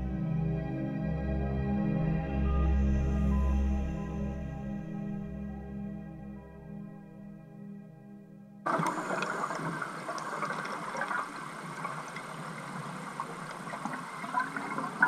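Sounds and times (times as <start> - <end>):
soft ambient music: 0.0 - 15.0
underwater hiss: 8.7 - 15.0.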